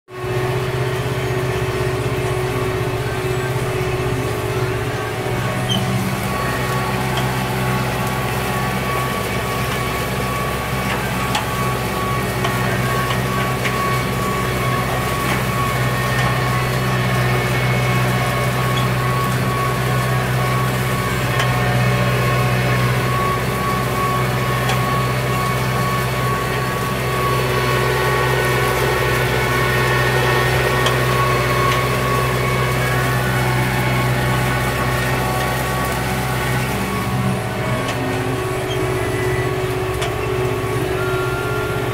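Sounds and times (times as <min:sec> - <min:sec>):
tractor diesel engine under load: 0:00.1 - 0:41.9.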